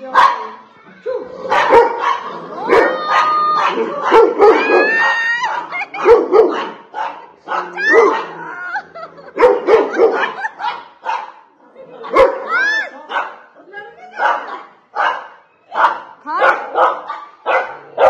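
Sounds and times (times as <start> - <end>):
dog barking: 0.0 - 0.6, 1.5 - 8.4, 9.3 - 11.5, 12.1 - 12.5, 13.1 - 13.4, 14.2 - 18.0
dog yelping and whining: 2.6 - 5.2.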